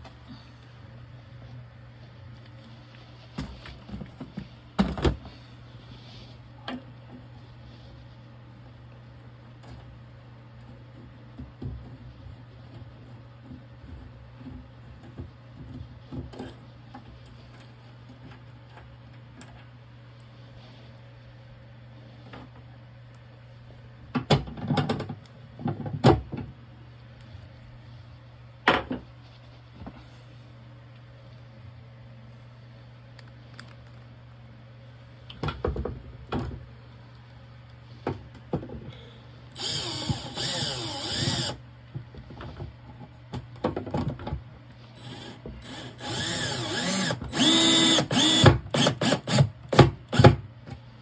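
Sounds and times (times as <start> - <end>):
cordless drill running: 39.6 - 41.6, 45.0 - 49.5.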